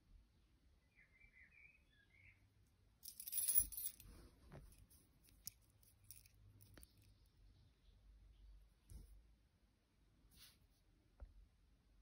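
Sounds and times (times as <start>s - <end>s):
lock picks jingling on ring: 3.0s - 4.1s, 5.2s - 7.1s.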